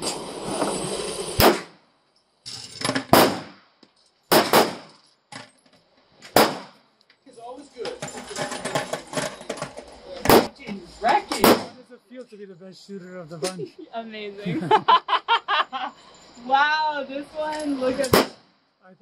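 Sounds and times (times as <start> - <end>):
pistol shots with echo: 3.1 - 3.6, 4.3 - 4.9, 6.4 - 6.8
voices: 7.1 - 19.0.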